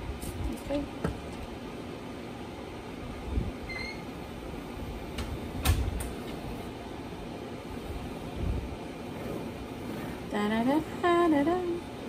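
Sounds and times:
steady low rumble: 2.7 - 12.0
spatula smoothing frosting: 7.8 - 11.4.

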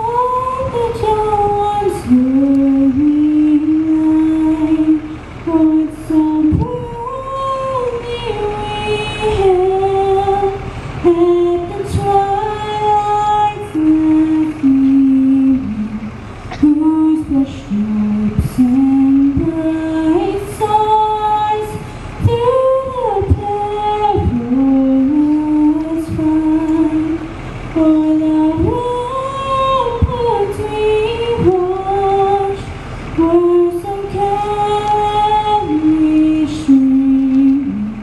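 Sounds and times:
girl singing an anthem solo: 0.0 - 15.9, 27.8 - 38.0.

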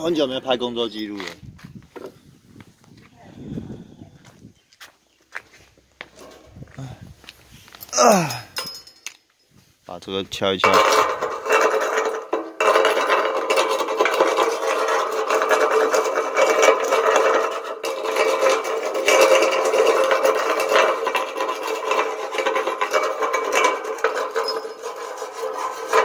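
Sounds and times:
steel ringing: 21.8 - 26.0.

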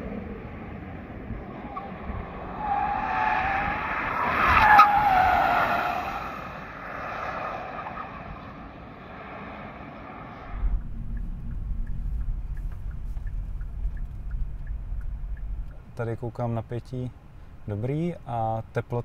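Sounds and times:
rush of tyre noise: 0.0 - 17.8
car tyres squealing: 1.4 - 10.7.

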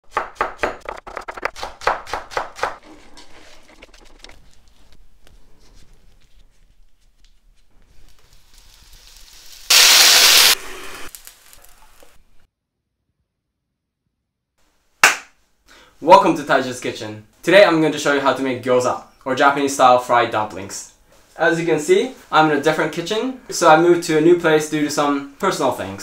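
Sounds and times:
knife chopping on wooden board: 0.1 - 2.9
sudden loud hiss: 8.4 - 12.4.

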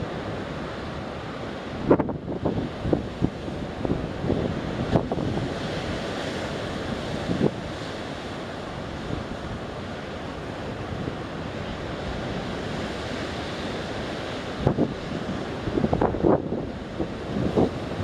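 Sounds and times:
sea waves washing against rocks: 0.0 - 18.0
wind buffeting microphone: 1.7 - 8.3, 10.8 - 18.0.

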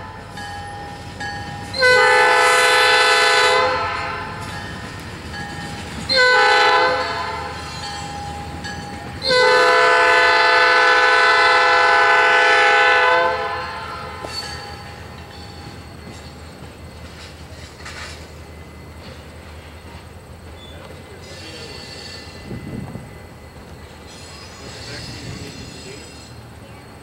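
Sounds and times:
train rumbling past: 0.0 - 27.0
locomotive air horn blasts: 1.8 - 4.4, 6.1 - 7.7, 9.2 - 14.3.

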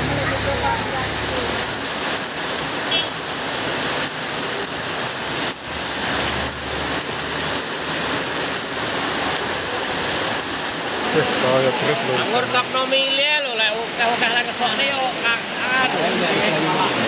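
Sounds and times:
car driving past on wet road: 0.0 - 13.2
heavy rain on road: 0.0 - 17.0.

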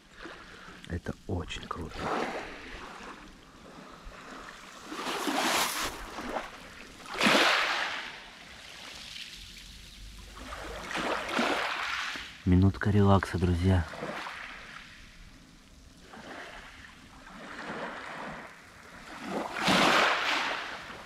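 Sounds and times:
waves washing over pebble beach: 1.9 - 9.3, 13.9 - 15.0, 16.0 - 21.0.

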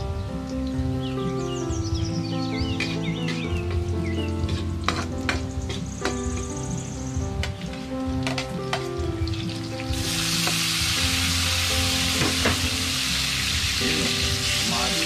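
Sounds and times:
oil sizzling in a pan: 8.3 - 15.0.

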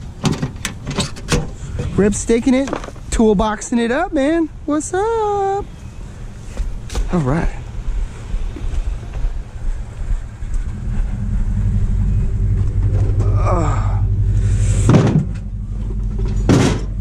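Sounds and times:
pickup engine idling: 5.3 - 17.0
knock in truck bed: 14.9 - 15.4.

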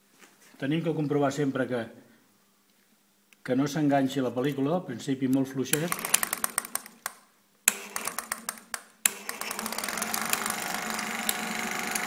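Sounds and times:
projector motor hum: 5.7 - 7.1, 7.7 - 12.0
film projector mechanism clattering: 5.8 - 12.0.

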